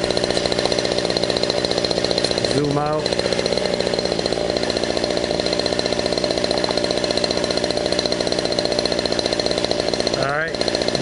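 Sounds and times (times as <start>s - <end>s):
rc helicopter engine running: 0.0s - 11.0s.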